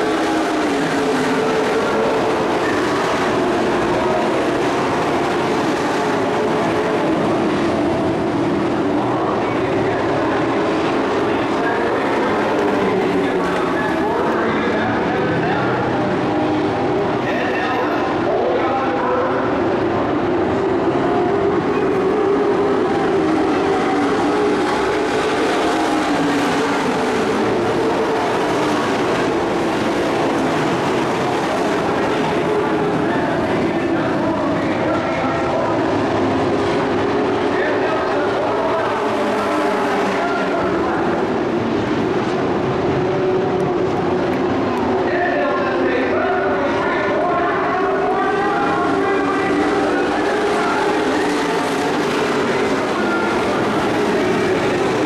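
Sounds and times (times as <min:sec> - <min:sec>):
race truck engines droning: 0:00.0 - 0:55.0.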